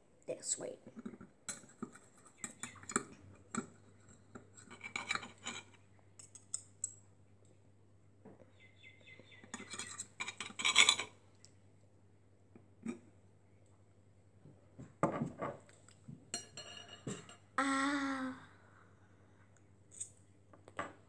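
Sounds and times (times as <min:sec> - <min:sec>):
fork and knife scraping a plate: 0:01.5 - 0:05.8, 0:09.5 - 0:11.2.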